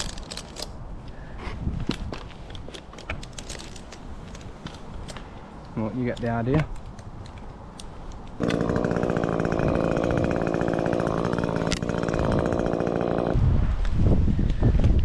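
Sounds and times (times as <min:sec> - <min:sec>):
chainsaw running: 0:08.4 - 0:13.4.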